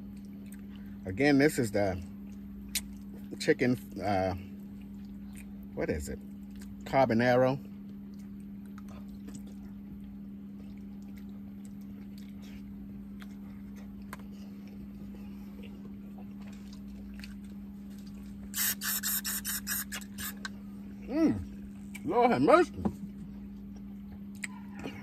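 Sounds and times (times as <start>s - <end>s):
wet mouth eating sounds: 0.0s - 1.0s, 2.2s - 3.4s, 4.6s - 6.8s, 7.8s - 20.6s, 21.4s - 22.1s, 23.6s - 24.6s
low electrical hum: 0.0s - 25.0s.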